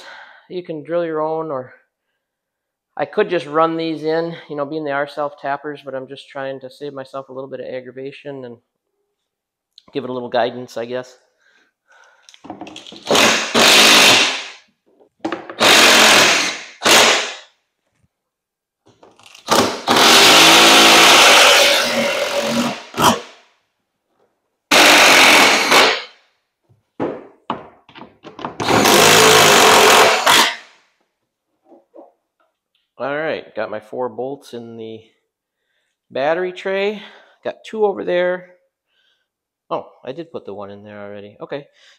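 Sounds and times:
power drill running: 13.0 - 14.4, 15.6 - 17.3, 19.4 - 23.2, 24.7 - 26.1, 28.6 - 30.6.

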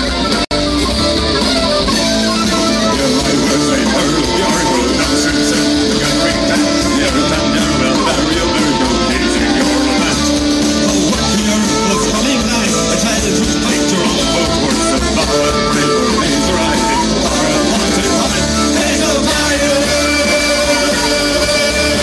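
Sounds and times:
live rock band playing: 0.0 - 22.0.

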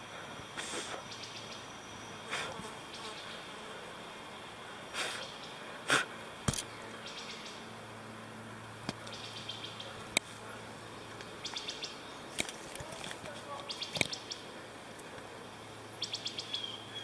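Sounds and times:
footsteps on dry leaves and twigs: 12.3 - 14.1.

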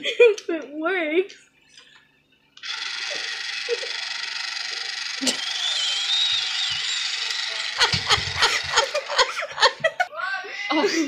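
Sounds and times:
small toy motor whirring: 2.6 - 9.5.

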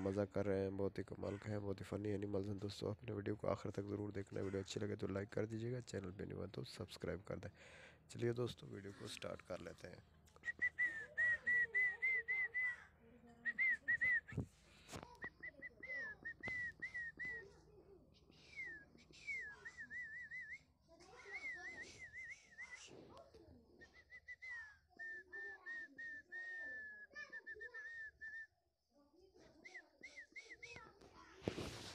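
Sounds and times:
faint voices: 0.0 - 28.4, 29.3 - 31.9
warbled whistling: 10.4 - 12.8, 13.5 - 14.5, 15.2 - 17.5, 18.4 - 22.9.

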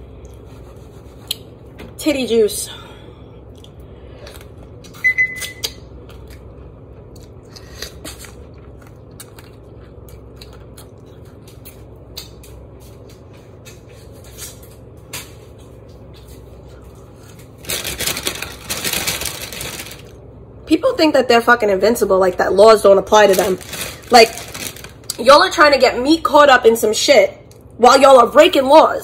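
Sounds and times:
low steady hum: 0.0 - 29.0
chewing and lip smacks: 3.5 - 13.1.

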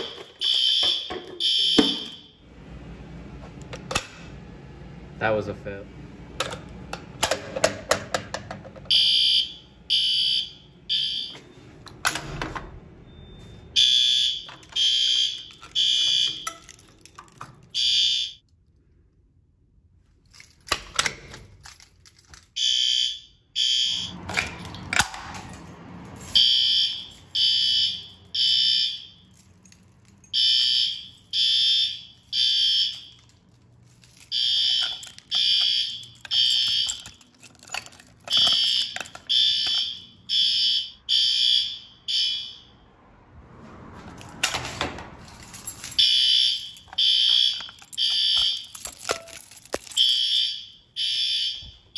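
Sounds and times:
fire alarm horn blasts: 0.0 - 2.6, 8.9 - 11.5, 13.1 - 16.5, 17.7 - 18.4, 22.6 - 24.2, 26.3 - 29.3, 30.3 - 33.3, 34.3 - 37.2, 38.3 - 43.0, 46.0 - 48.8, 50.0 - 51.9.

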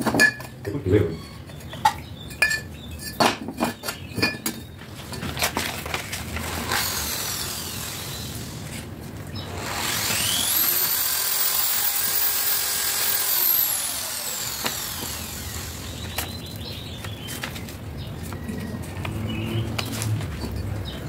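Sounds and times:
power tool motor whine: 6.4 - 16.4.

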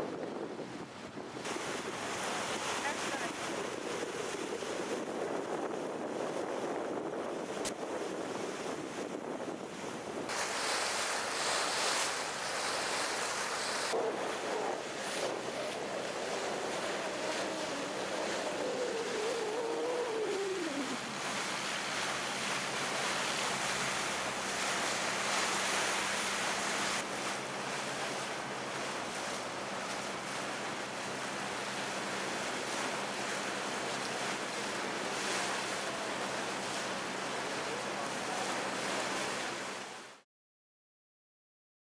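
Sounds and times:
wind buffeting microphone: 0.0 - 10.4, 13.9 - 21.3
water rushing past hull: 0.0 - 40.2.

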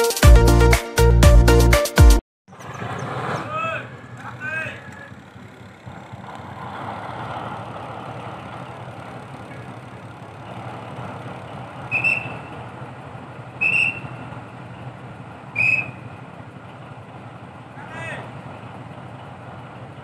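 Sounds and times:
diesel locomotive idling: 2.5 - 20.0
shrill whistle blasts: 11.9 - 12.6, 13.6 - 14.2, 15.5 - 16.1.

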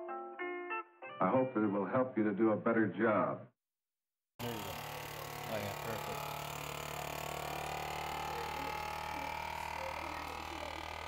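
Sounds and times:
vacuum sealer pump humming: 4.4 - 11.0.

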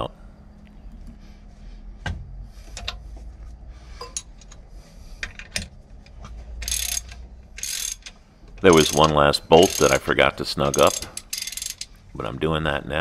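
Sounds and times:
wrenches clinking on metal: 5.2 - 12.0
ratchet wrench clicking: 6.6 - 10.1, 10.7 - 11.9.

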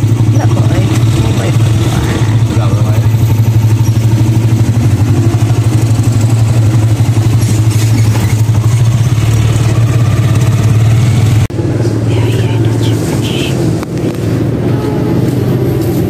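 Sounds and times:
motorcycle engine throbbing: 0.0 - 16.0.

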